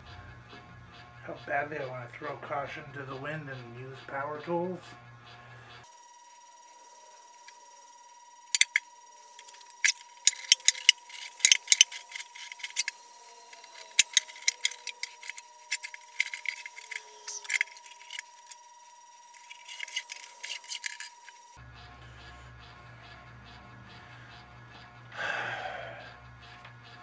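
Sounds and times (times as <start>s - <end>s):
faint steady high tone: 5.8s - 25.0s
file scraping metal: 8.5s - 25.1s.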